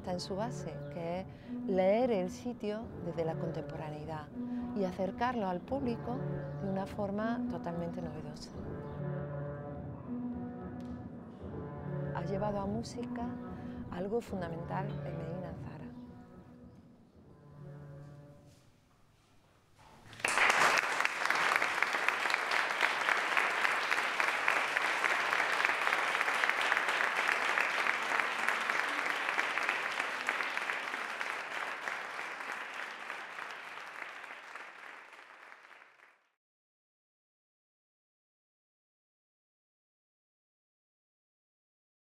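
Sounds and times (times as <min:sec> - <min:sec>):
faint music notes: 0:00.0 - 0:19.3
audience applauding: 0:20.0 - 0:36.3.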